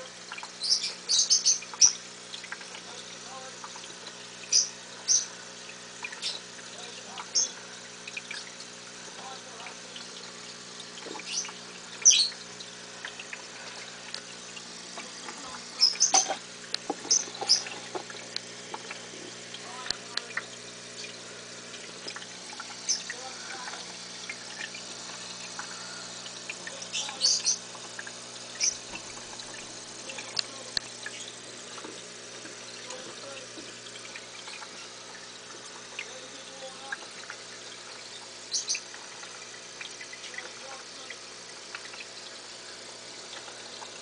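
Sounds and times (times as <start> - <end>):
bubbles gurgling in water: 0.0 - 44.0.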